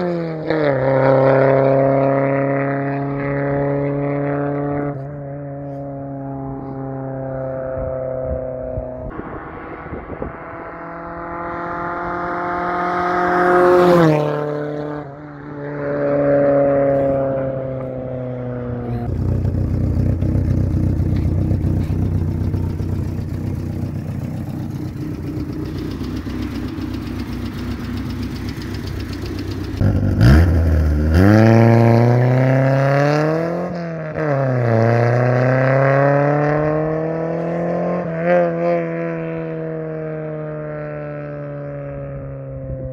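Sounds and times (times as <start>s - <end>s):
car engine revving: 0.0s - 42.4s
rough low engine rumble: 16.7s - 32.8s.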